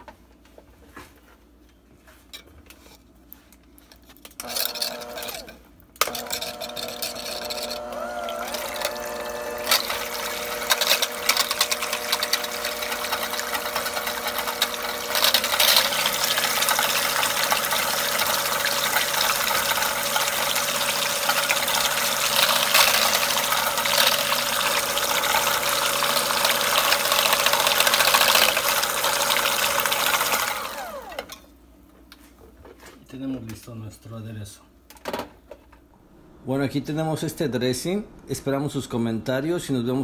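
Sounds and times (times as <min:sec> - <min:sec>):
immersion blender running: 0:04.4 - 0:31.4.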